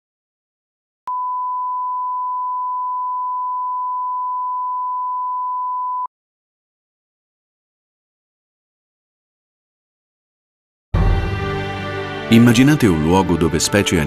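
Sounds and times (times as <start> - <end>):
steady test tone beep: 1.1 - 6.1.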